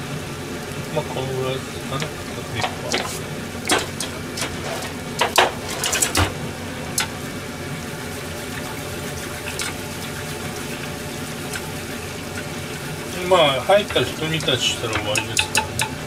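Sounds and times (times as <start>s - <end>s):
stew bubbling in a pot: 0.1s - 16.0s
utensil knocking against pot: 13.8s - 16.0s.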